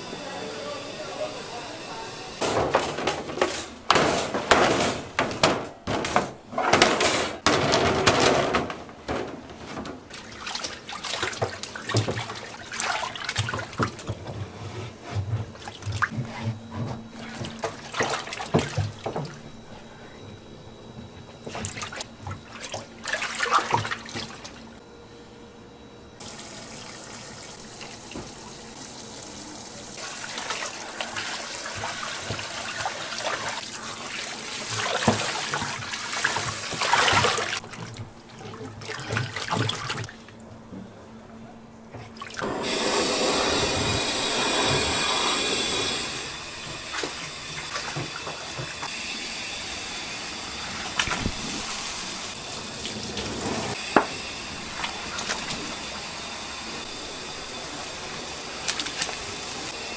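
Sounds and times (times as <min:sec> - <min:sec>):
objects clattering in sink: 0:02.4 - 0:19.6, 0:21.4 - 0:24.6, 0:34.6 - 0:40.2, 0:46.6 - 0:48.9.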